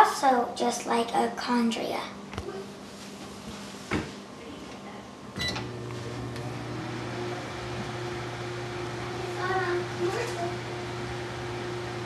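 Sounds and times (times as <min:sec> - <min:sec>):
microwave oven humming: 0:00.0 - 0:12.0
microwave oven click: 0:05.4 - 0:07.0.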